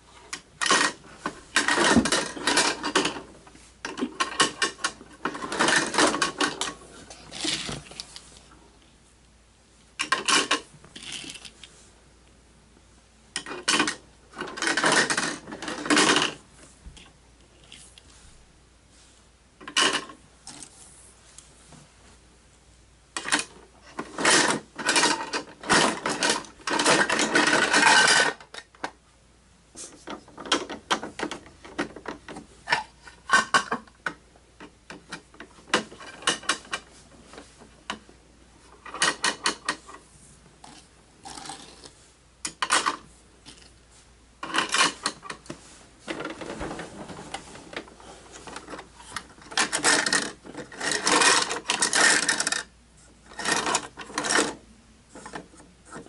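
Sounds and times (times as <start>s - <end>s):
plastic toy clicking and rattling: 0.6s - 3.2s, 3.9s - 6.7s, 10.0s - 11.5s, 13.4s - 16.4s, 23.2s - 28.9s, 48.5s - 52.7s, 53.3s - 54.6s.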